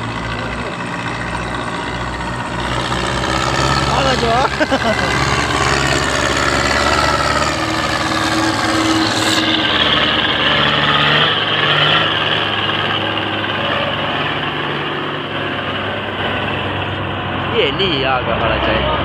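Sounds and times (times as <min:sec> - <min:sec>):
tractor diesel engine running: 0:00.0 - 0:19.0.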